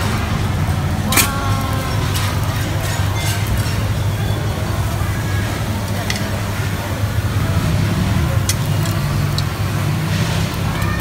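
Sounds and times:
kitchen rumble: 0:00.0 - 0:11.0.

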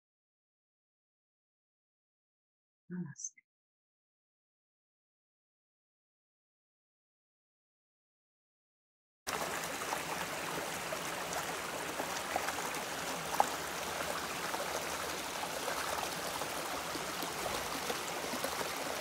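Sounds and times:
stream babbling over rocks: 0:09.3 - 0:19.0.

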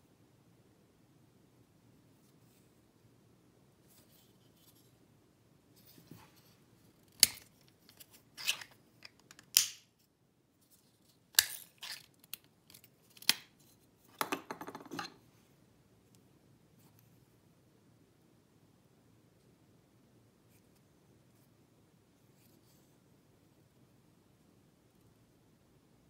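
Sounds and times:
tool clattering on wooden table: 0:14.2 - 0:15.2.

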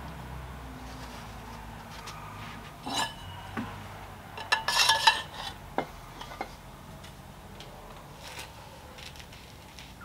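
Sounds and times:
metal ringing: 0:02.8 - 0:03.5, 0:04.4 - 0:05.6.

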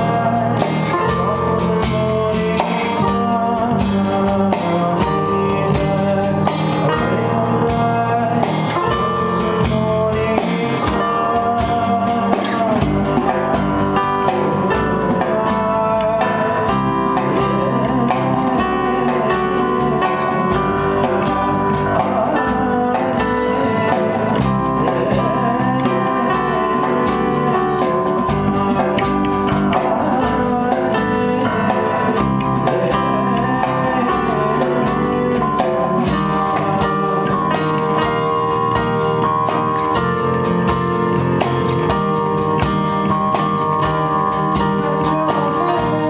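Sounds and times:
man singing into a microphone: 0:00.0 - 0:40.5, 0:43.2 - 0:46.0
acoustic guitar: 0:00.0 - 0:46.0
electric bass: 0:00.0 - 0:46.0
keyboard: 0:00.0 - 0:46.0.

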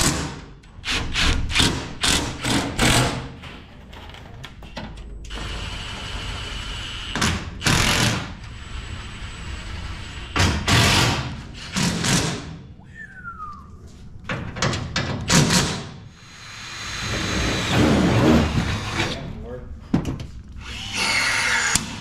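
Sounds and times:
cordless drills whirring: 0:20.6 - 0:22.0.

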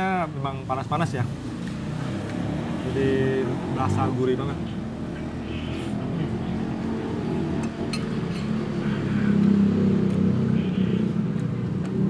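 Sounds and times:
road traffic engine hum: 0:00.0 - 0:12.0
metal spoon clinking clay pot: 0:07.9 - 0:08.6.

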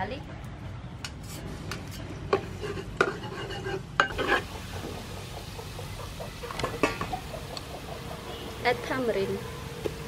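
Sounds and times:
garlic frying in oil: 0:02.4 - 0:10.0.

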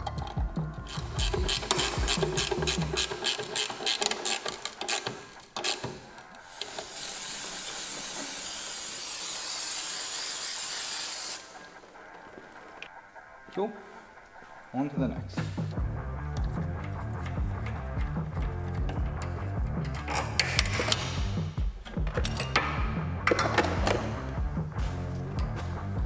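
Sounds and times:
hiss of escaping air: 0:06.5 - 0:11.7.

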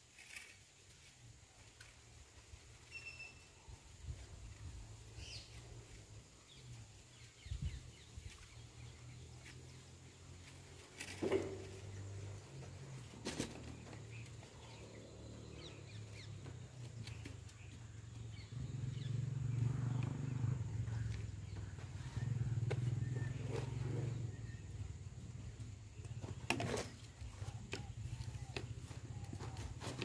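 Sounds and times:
faint bird chirps: 0:02.8 - 0:04.0.

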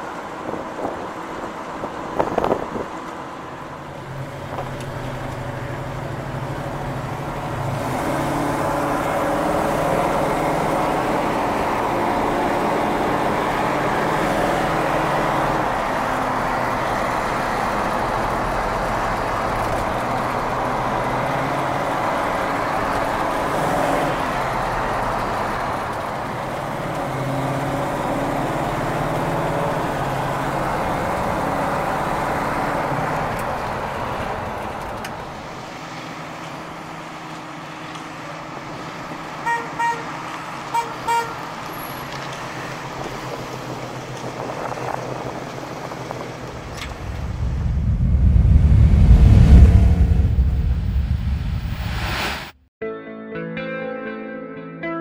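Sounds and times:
road noise: 0:00.0 - 0:52.7
car engine running: 0:46.1 - 0:52.1.

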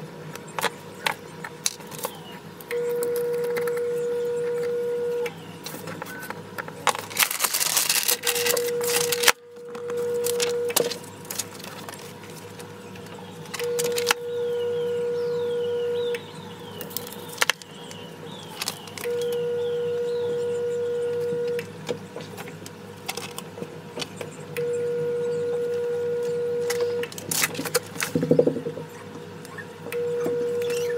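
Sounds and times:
steady mid-pitched hum: 0:00.0 - 0:30.9
paper rustling and crinkling: 0:05.6 - 0:09.4, 0:10.2 - 0:12.7.

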